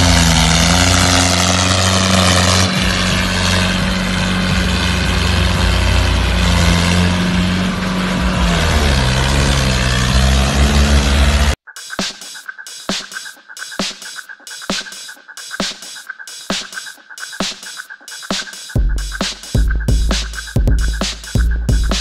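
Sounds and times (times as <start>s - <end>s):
tractor diesel engine under load: 0.0s - 11.6s.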